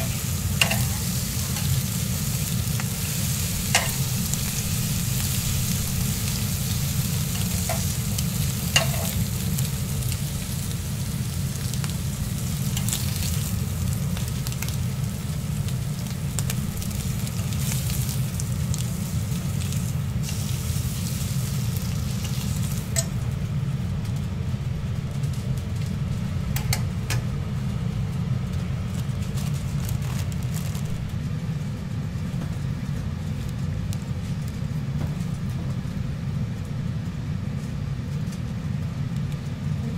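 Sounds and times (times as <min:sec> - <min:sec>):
metal tongs clicking on griddle: 0:00.0 - 0:01.8, 0:03.7 - 0:04.5, 0:07.1 - 0:09.2, 0:12.7 - 0:13.5, 0:22.2 - 0:23.2, 0:26.6 - 0:27.2
bacon sizzling on griddle: 0:00.0 - 0:26.5
steady low hum: 0:00.0 - 0:39.9.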